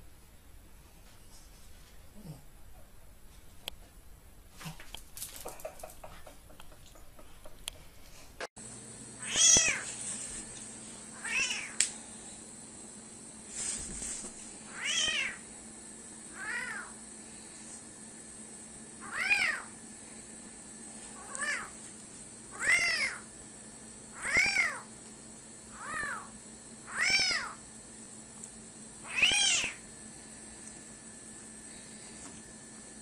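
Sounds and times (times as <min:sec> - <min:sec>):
cat meowing: 0:19.0 - 0:19.7, 0:26.9 - 0:27.6, 0:29.1 - 0:29.8.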